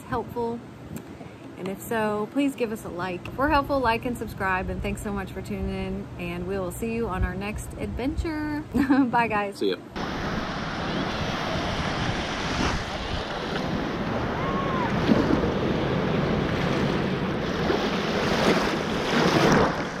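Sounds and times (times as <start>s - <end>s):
surf washing at water's edge: 10.0s - 20.0s
wind buffeting microphone: 10.0s - 20.0s.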